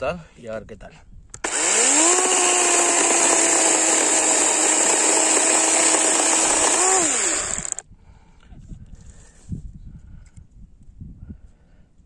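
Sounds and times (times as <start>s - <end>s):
cordless chainsaw cutting wood: 1.4s - 7.8s.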